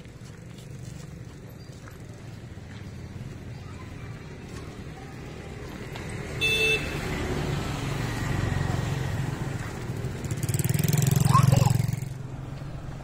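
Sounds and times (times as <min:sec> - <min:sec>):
vehicle engine passing: 0:03.2 - 0:13.0
horn toot: 0:06.4 - 0:07.0.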